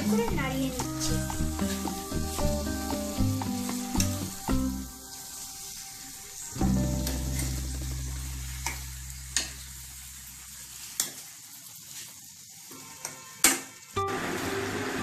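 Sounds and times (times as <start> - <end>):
vegetables sizzling: 0.0 - 15.0
low hum: 6.6 - 10.6.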